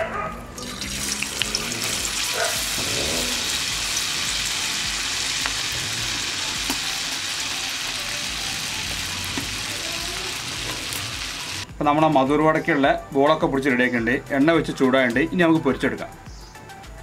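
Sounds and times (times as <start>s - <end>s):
patty sizzling in hot oil: 0.6s - 11.6s.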